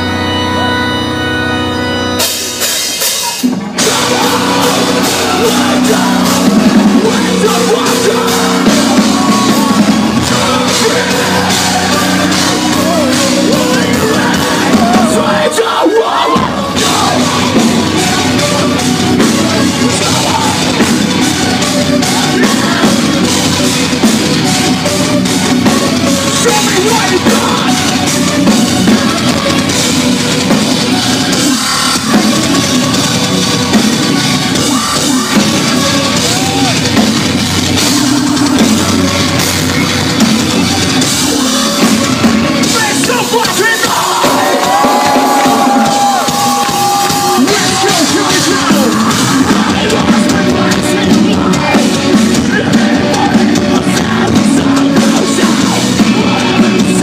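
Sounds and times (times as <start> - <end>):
live metalcore band playing: 0.0 - 57.0
pounding drum kit: 0.0 - 57.0
shouted vocals: 3.7 - 25.1, 26.1 - 30.0, 34.5 - 37.0, 41.2 - 57.0.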